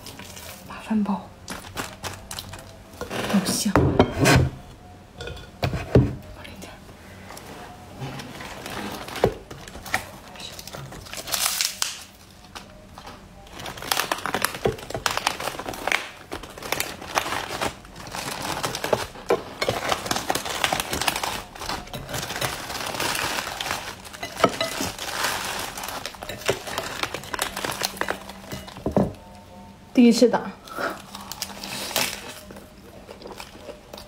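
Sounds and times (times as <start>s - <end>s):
lettuce leaves crinkling: 1.5s - 2.8s, 8.2s - 29.2s, 30.7s - 34.0s.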